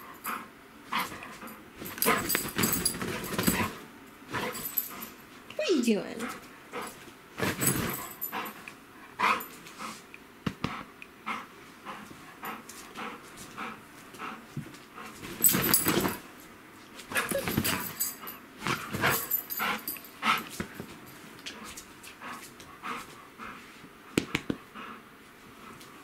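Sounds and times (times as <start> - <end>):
dog panting: 7.9 - 10.0, 10.6 - 15.2, 17.1 - 20.8, 21.4 - 26.0.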